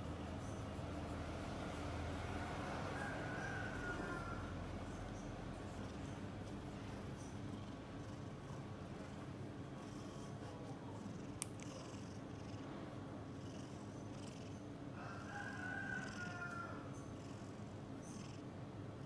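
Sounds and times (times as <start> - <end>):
cat purring: 0.0 - 14.8.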